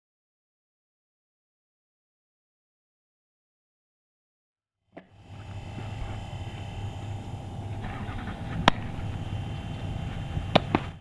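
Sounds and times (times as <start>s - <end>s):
low outdoor rumble: 5.1s - 11.0s.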